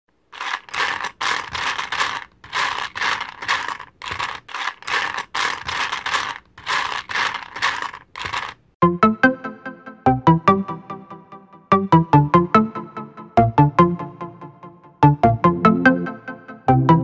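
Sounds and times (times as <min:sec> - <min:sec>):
small hard pieces rattling: 0:00.3 - 0:08.6.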